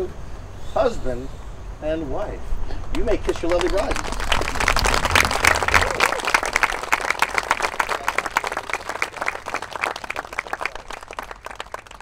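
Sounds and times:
crowd applauding: 3.2s - 12.0s.

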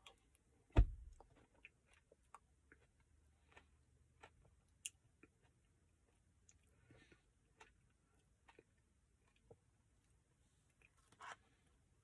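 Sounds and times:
thump: 0.8s - 1.2s
mouth and chewing sounds: 1.1s - 9.7s.

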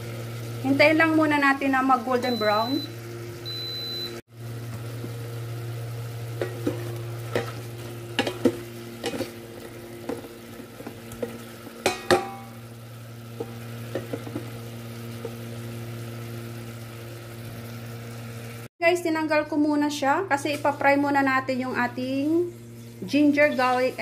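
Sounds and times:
meat sizzling: 0.0s - 18.7s.

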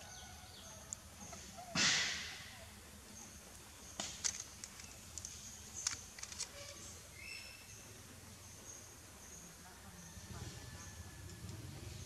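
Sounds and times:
sharp soft clicks: 4.0s - 6.5s
bird chirps: 6.6s - 11.0s.

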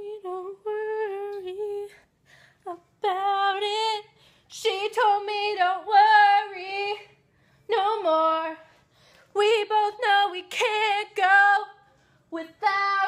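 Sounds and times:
woman singing pop melody: 0.0s - 13.0s.

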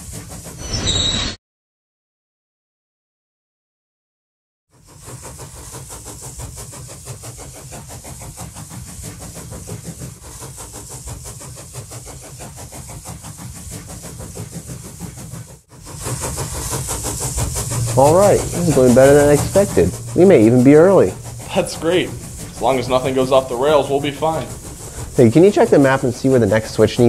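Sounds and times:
hiss: 0.0s - 1.0s, 4.7s - 27.0s
locomotive engine throbbing: 15.7s - 27.0s.

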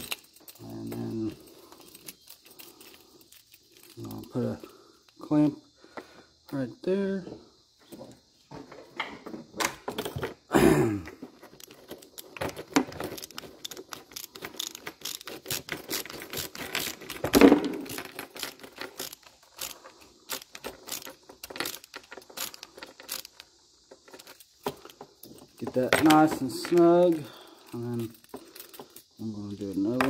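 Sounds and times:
metal parts clicking and rattling: 0.0s - 5.3s, 11.2s - 30.0s.

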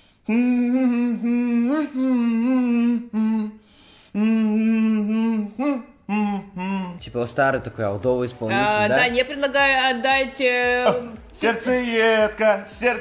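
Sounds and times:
person humming a melody: 0.2s - 7.2s.

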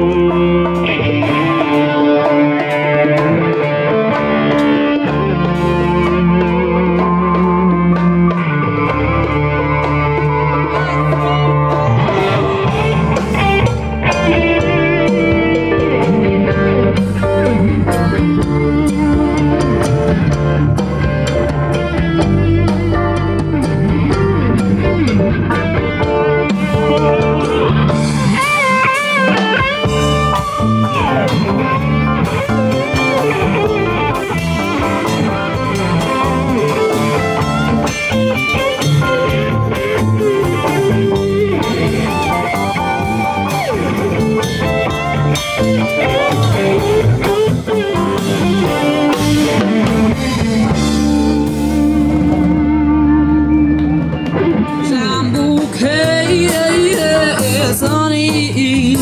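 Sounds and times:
electric guitar solo with bent notes: 0.0s - 59.0s
live rock band playing: 0.0s - 59.0s.

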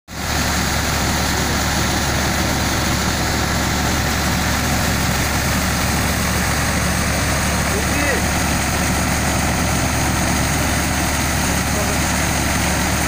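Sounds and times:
grain thresher whirring: 0.1s - 13.0s
tractor diesel engine droning: 0.1s - 13.0s.

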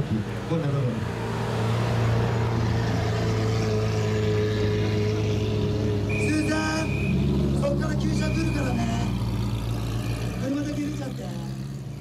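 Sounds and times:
car engine at low revs: 0.0s - 12.0s.

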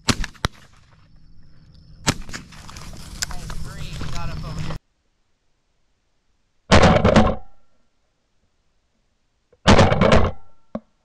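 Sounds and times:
shotgun shots: 0.0s - 0.8s, 2.0s - 2.6s, 6.7s - 7.5s, 9.7s - 10.5s.

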